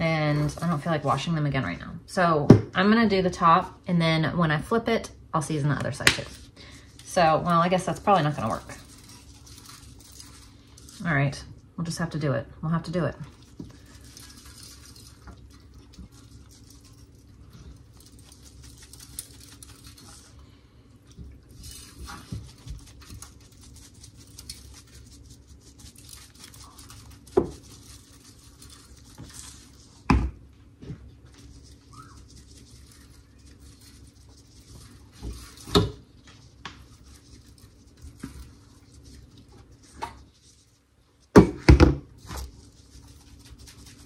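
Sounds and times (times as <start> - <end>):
seasoning pattering from shaker: 13.2 - 20.4, 21.2 - 30.1, 31.2 - 41.3, 42.1 - 44.0.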